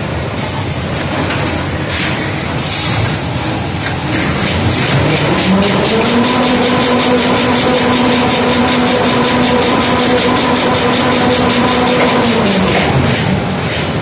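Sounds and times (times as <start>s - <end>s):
steady motor hum: 0.0s - 14.0s
machine clattering rapidly: 4.0s - 14.0s.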